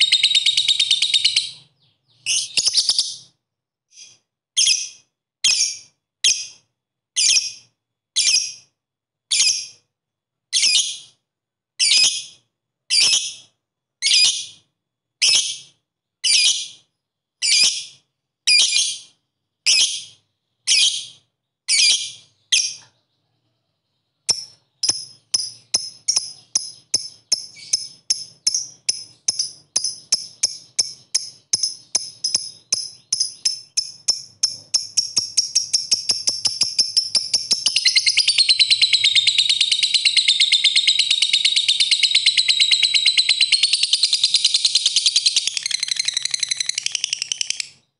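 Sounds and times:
lovebird rapid chatter: 0.0 - 3.3, 24.3 - 47.9
lovebird chirping: 0.0 - 9.8, 10.5 - 11.2, 11.8 - 14.6, 15.2 - 47.9.

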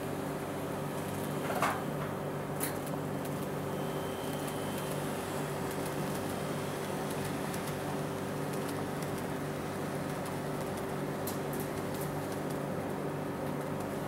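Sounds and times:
model train mechanical hum: 2.6 - 12.4
faint high whine: 3.6 - 8.2.

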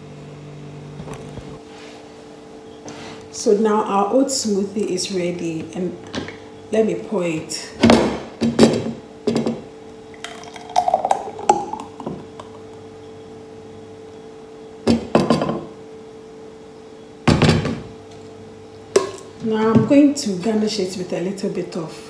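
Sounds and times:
smoothie pouring: 10.2 - 12.6.

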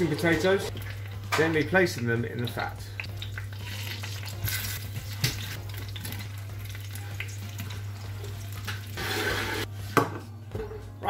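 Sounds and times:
fat sizzling and spitting: 2.9 - 9.7.

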